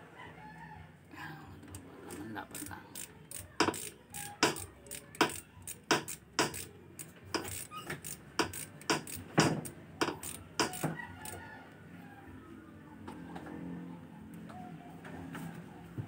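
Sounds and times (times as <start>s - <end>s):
ratchet wrench clicking: 2.5s - 11.4s.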